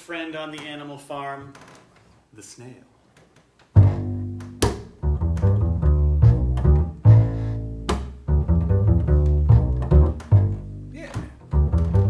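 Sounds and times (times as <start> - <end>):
double bass plucking: 3.7 - 12.0.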